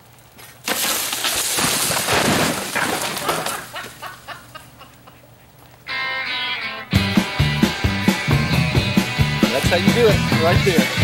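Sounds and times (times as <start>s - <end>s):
tree trunk snapping and crashing: 0.6s - 4.0s.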